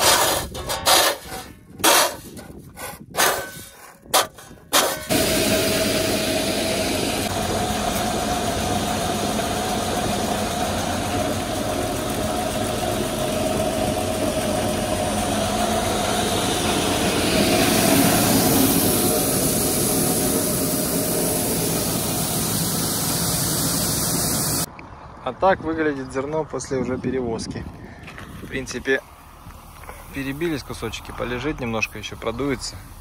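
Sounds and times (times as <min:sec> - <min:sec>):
farm vehicle engine running: 0:04.2 - 0:24.7.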